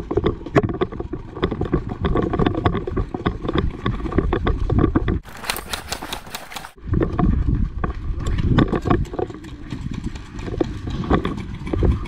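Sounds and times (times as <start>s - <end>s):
gear rattling: 0.0s - 6.8s
running footsteps on grass: 5.2s - 6.8s.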